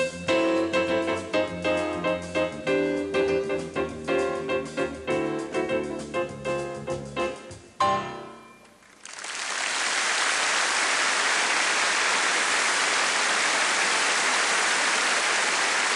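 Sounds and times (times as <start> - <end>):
grand piano piece: 0.0 - 9.0
audience applause: 8.8 - 15.9.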